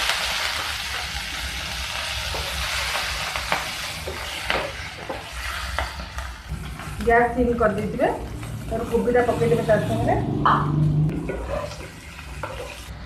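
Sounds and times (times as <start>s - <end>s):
leaves sizzling in hot oil: 0.0s - 13.0s.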